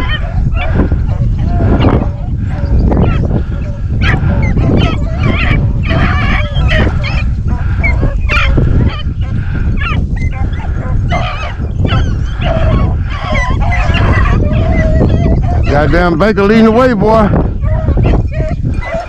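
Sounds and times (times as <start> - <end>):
steady low rumble: 0.0 - 14.7
hounds baying and yelping: 0.0 - 19.0.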